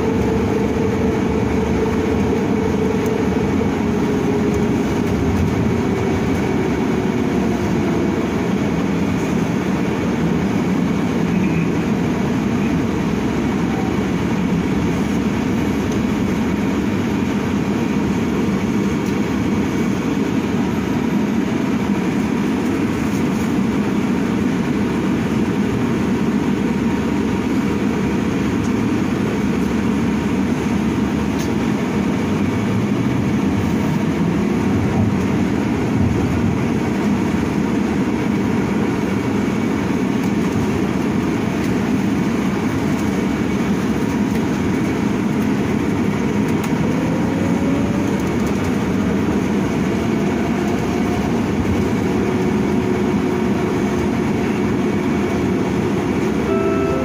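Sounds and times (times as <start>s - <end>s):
bus tyres rumbling: 0.0s - 57.0s
faint high tone: 56.4s - 57.0s.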